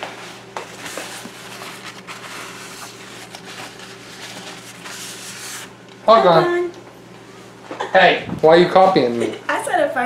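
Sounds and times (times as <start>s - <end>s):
towel scrubbing countertop: 0.0s - 5.8s.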